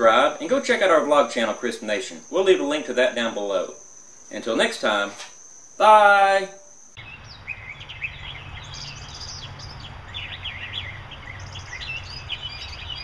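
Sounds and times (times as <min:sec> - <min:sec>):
small birds chirping: 0:06.7 - 0:13.0.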